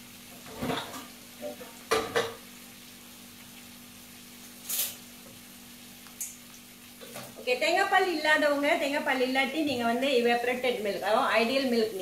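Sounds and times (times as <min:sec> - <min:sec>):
chicken sizzling in a pan: 0:00.0 - 0:12.0
kitchenware clattering: 0:00.5 - 0:02.4
short high hiss: 0:04.4 - 0:05.1.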